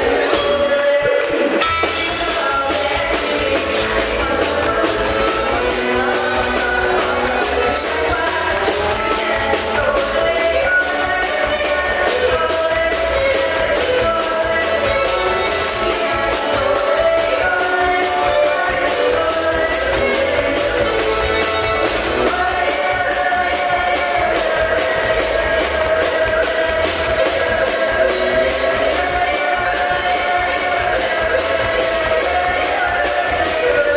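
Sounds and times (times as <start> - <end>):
bass guitar: 0.0 - 33.9
drums: 0.0 - 33.9
woman singing into a microphone: 0.0 - 33.9.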